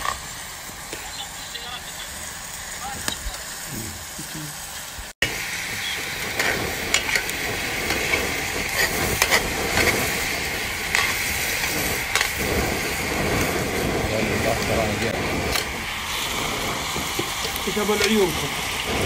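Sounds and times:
meat sizzling in a pan: 0:00.0 - 0:19.0
metal spoon scraping a pan: 0:07.9 - 0:10.1.

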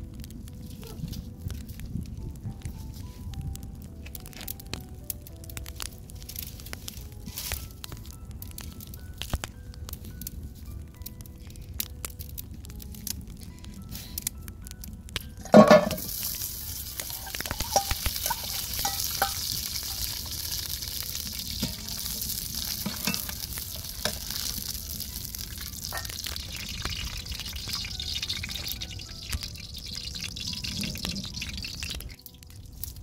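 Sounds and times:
fat sizzling in hot pan: 0:15.2 - 0:33.0
metal spatula scraping pan: 0:17.0 - 0:20.1.

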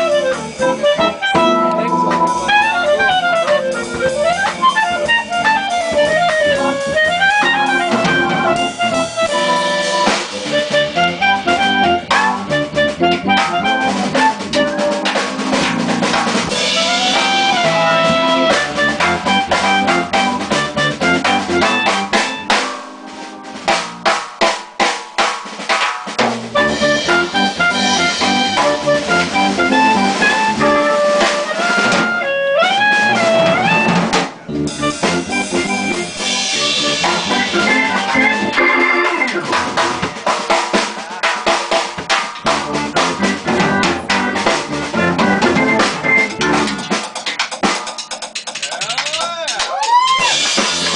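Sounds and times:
clarinet melody: 0:00.0 - 0:23.6, 0:26.5 - 0:40.2, 0:42.5 - 0:46.9
electric bass: 0:00.0 - 0:24.2, 0:26.2 - 0:40.3, 0:42.4 - 0:47.0, 0:50.3 - 0:50.9
keyboard: 0:00.0 - 0:24.2, 0:26.2 - 0:49.4
drum kit snare and rimshots: 0:00.0 - 0:50.9.

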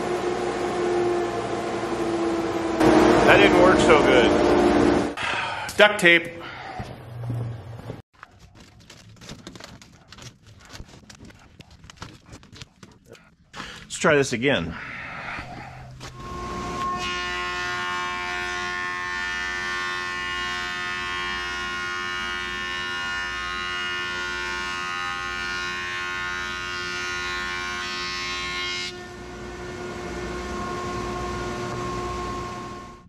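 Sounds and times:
thickness planer whining: 0:00.0 - 0:05.2, 0:16.0 - 0:33.0.

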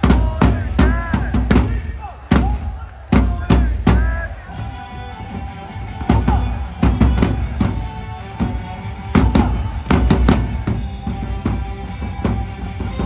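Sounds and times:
heavy drum hits: 0:00.0 - 0:04.1
stadium cheer music: 0:00.0 - 0:13.0.

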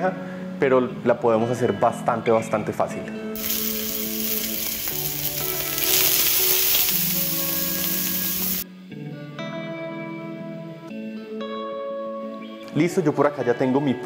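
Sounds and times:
background music: 0:02.1 - 0:14.0
food sizzling in a grill pan: 0:03.4 - 0:08.6.

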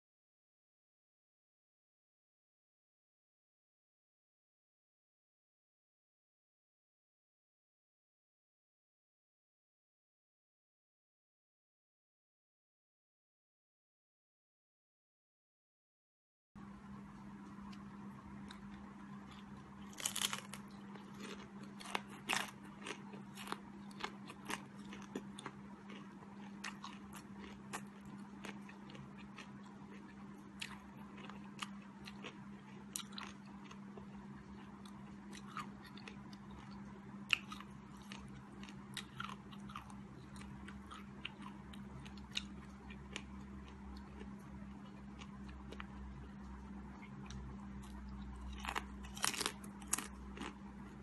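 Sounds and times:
low hum: 0:16.6 - 0:51.0
crunching fried food: 0:17.4 - 0:51.0.

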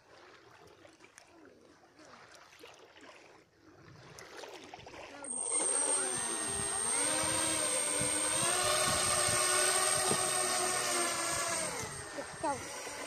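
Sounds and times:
model propellers buzzing: 0:05.3 - 0:13.0
thin high whine: 0:05.3 - 0:13.0.

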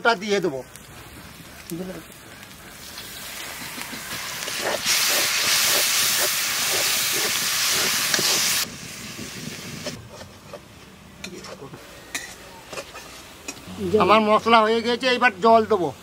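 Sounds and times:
paste sizzling in hot oil: 0:00.0 - 0:09.9
metal spatula scraping pan: 0:11.2 - 0:13.6.

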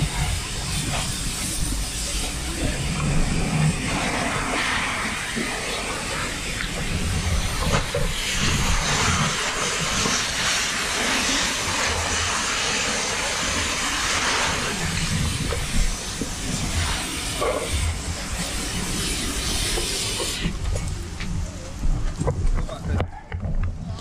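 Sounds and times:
water jet spraying: 0:00.0 - 0:23.0
low uneven rumble: 0:11.8 - 0:24.0.

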